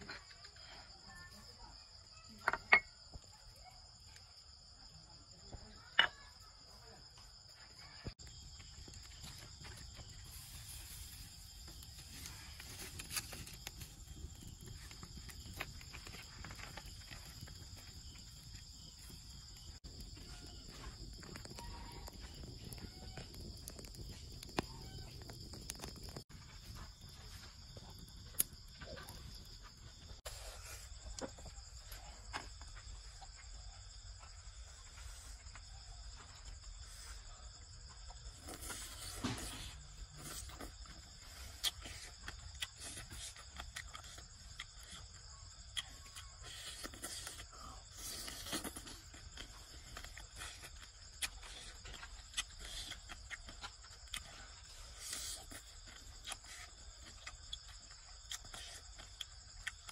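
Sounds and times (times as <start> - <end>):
small clicks and crackles: 8.6 - 30.2.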